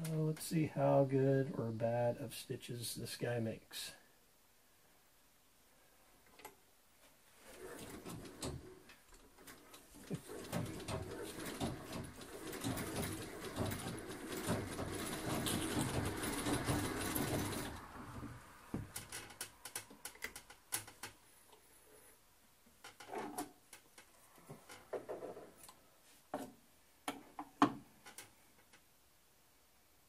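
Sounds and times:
sewing machine stitching: 7.4 - 18.4.

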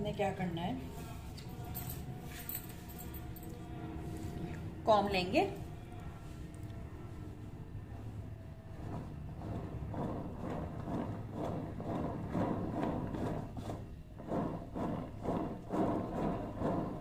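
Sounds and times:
plastic turntable rumbling: 8.7 - 17.0.

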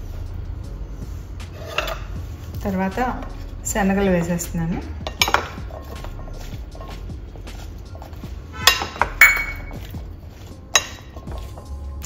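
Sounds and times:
kitchenware clinks: 8.6 - 9.8.

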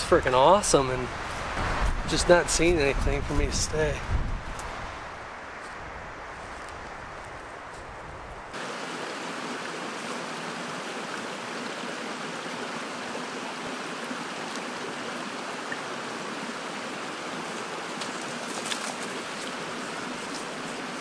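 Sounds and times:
footsteps on brush and gravel: 5.6 - 8.4, 18.0 - 21.0
creek water rushing: 8.4 - 21.0.

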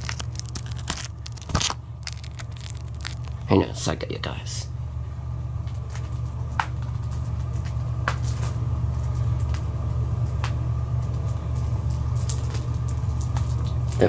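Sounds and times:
plastic wrapping crinkling and tearing: 0.0 - 3.5
steady low hum: 0.0 - 14.0.

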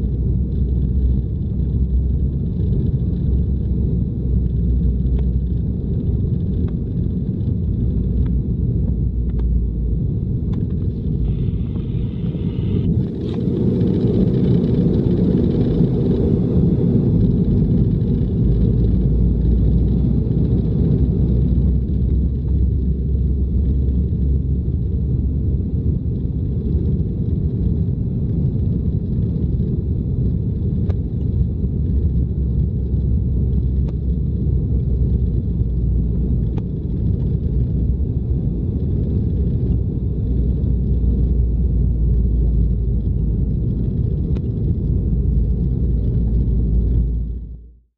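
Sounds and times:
airliner cabin rumble: 0.0 - 47.9
faint high whine: 10.7 - 14.2.

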